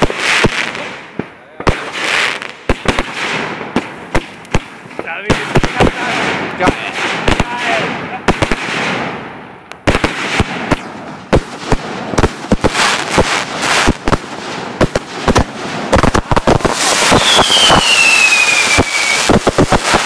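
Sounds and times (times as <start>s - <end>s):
fireworks bangs and pops: 0.0s - 20.0s
fireworks crackling: 0.0s - 20.0s
falling whistle: 17.1s - 19.3s.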